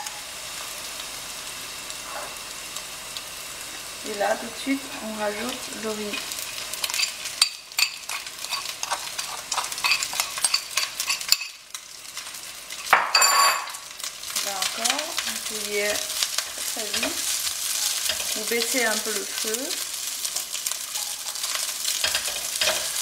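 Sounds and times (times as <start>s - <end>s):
rice sizzling in hot oil: 0.0s - 23.0s
spatula clicking and scraping pan: 6.1s - 13.0s, 16.2s - 19.5s, 20.2s - 23.0s.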